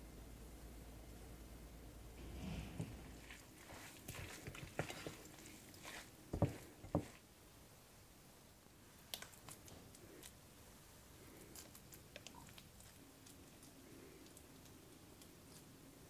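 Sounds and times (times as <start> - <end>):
soft squishing of spreading: 2.2 - 7.3, 8.8 - 16.0.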